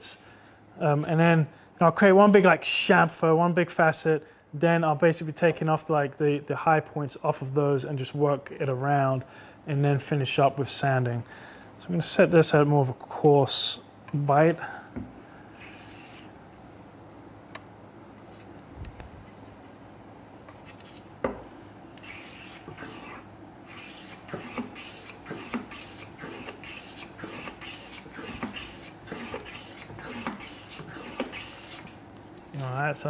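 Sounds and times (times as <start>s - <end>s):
hand plane rasping strokes: 15.6s - 16.3s, 22.0s - 32.0s.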